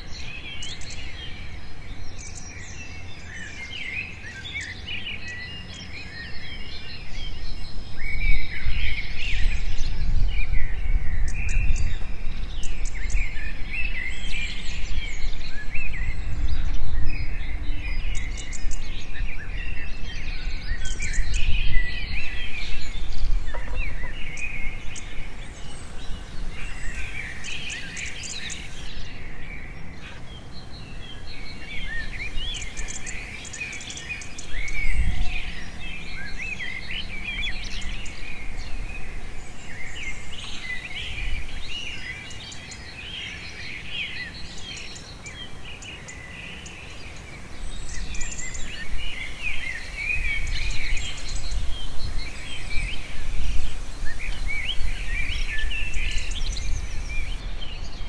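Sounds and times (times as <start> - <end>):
small birds chirping: 19.7 - 29.1, 29.9 - 57.9.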